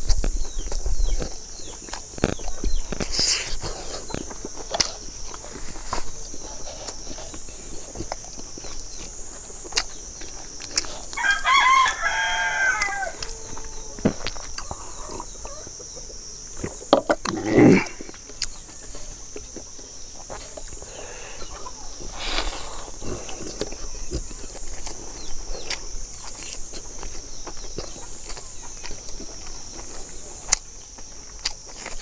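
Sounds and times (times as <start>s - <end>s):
close-up chewing and lip-smacking: 0.0s - 11.9s, 12.7s - 20.9s, 21.5s - 32.0s
rooster crowing: 11.1s - 14.0s.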